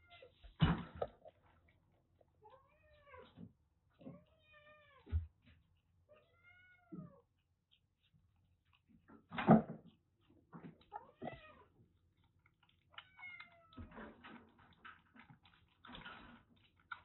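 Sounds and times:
smacking feeding noises: 0.2 - 2.4, 6.7 - 17.0.

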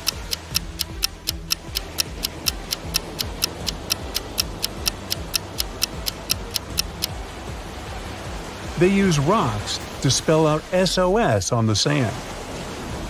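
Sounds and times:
clock ticking: 0.0 - 7.1.

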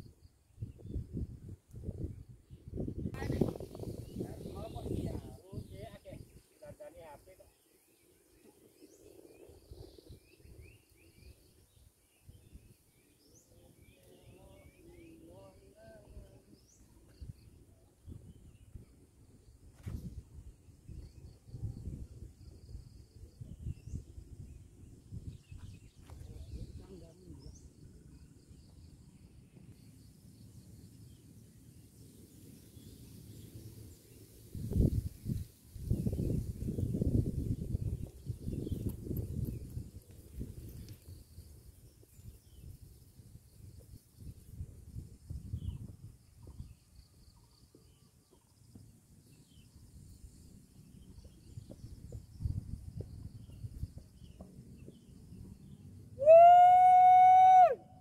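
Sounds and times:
wind rumble on microphone: 0.0 - 7.5, 8.1 - 29.8, 31.1 - 58.0.

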